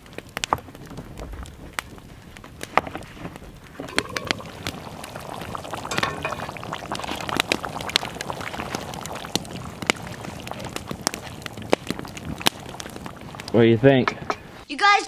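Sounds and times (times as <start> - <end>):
sharp clicks and pops: 0.0 - 14.4
stew sloshing and bubbling: 1.7 - 14.6
wooden spoon stirring pot: 3.8 - 14.4.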